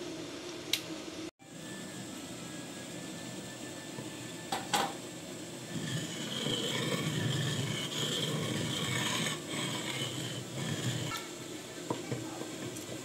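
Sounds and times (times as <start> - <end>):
pestle grinding in stone mortar: 5.7 - 11.2.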